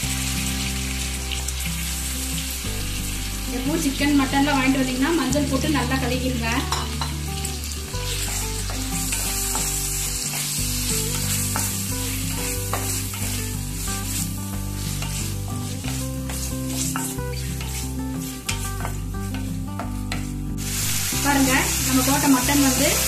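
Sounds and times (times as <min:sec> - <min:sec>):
meat sizzling in oil: 0:00.0 - 0:23.0
spatula scraping metal pot: 0:14.8 - 0:20.4.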